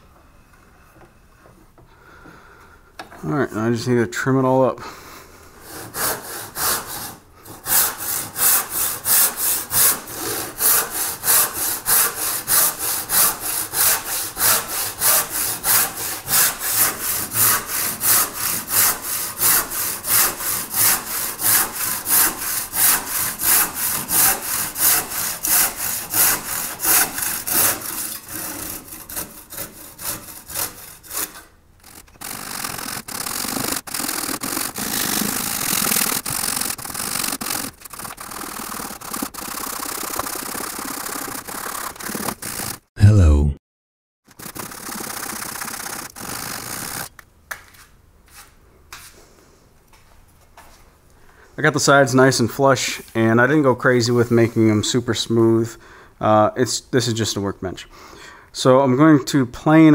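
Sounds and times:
handsaw cutting wood: 5.6s - 42.9s, 44.4s - 47.1s.

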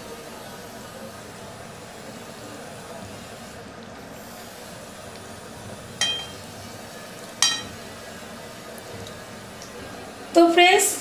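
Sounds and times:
spatula clinking against pan: 6.0s - 6.4s, 7.4s - 7.8s.

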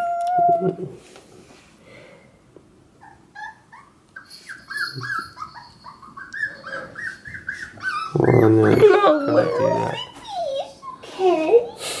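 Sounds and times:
puppy whining and yelping: 3.0s - 11.8s.

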